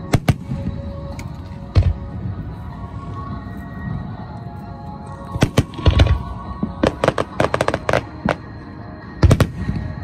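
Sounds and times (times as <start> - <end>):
fireworks bangs and crackles: 0.0 - 2.4, 5.3 - 10.0
music: 0.0 - 10.0.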